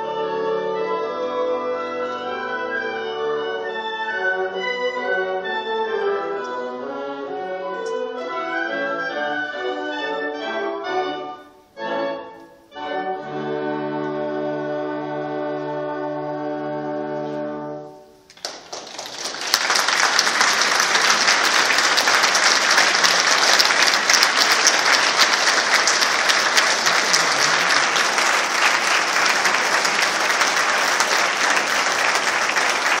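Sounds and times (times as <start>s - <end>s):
audience applauding: 18.3s - 33.0s.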